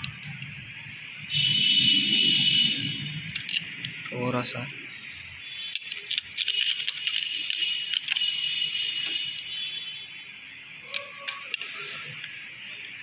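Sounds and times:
screwdriver metal clicks and scrapes: 0:05.7 - 0:08.3, 0:10.9 - 0:12.3.

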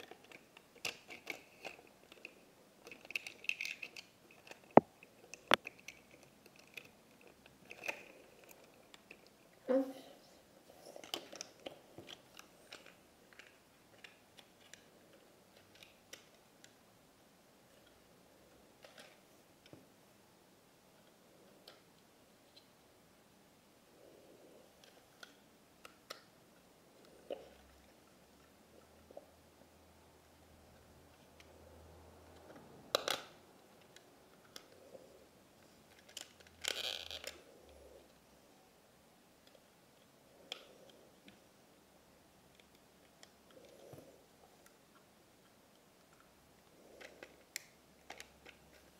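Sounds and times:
small plastic clicks: 0:00.0 - 0:09.4, 0:32.3 - 0:34.9, 0:35.6 - 0:38.1, 0:39.4 - 0:41.4, 0:42.5 - 0:48.9.

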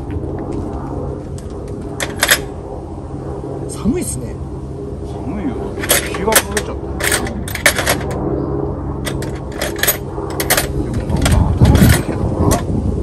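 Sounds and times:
low rumble: 0:00.0 - 0:13.0
metal tools clinking in toolbox: 0:05.8 - 0:08.2, 0:09.0 - 0:12.6.

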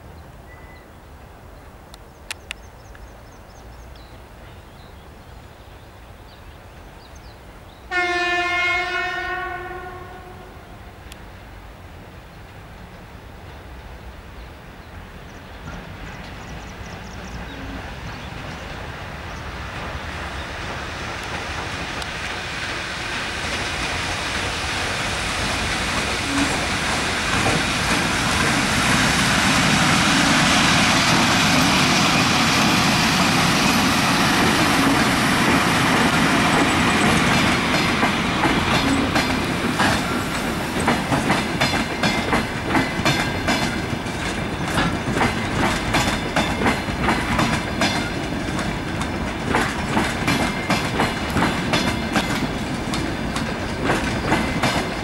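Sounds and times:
electric train passing: 0:06.6 - 0:55.0
wheels clicking over rail joints: 0:15.5 - 0:55.0.

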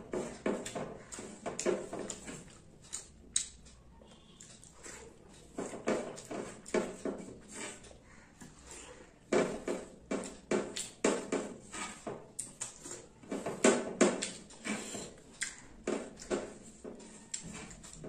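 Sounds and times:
food squished by hand: 0:00.1 - 0:07.0, 0:08.0 - 0:11.6, 0:12.2 - 0:18.0
chewing with lip smacks: 0:00.6 - 0:06.8, 0:12.3 - 0:13.1, 0:14.2 - 0:18.0.

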